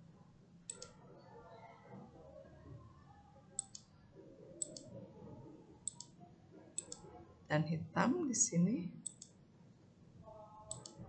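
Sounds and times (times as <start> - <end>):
faint room noise: 0.0 - 11.0
computer mouse clicks: 0.7 - 1.0, 3.6 - 3.9, 4.6 - 4.9, 5.8 - 6.2, 6.8 - 7.0, 9.0 - 9.4, 10.7 - 11.0.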